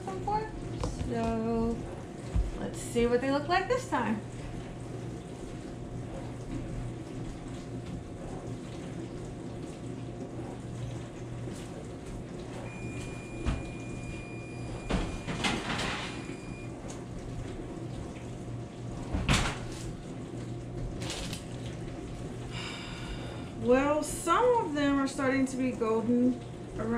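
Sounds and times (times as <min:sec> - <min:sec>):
steady low hum: 0:00.0 - 0:26.9
oven door opening and shutting: 0:12.8 - 0:16.6.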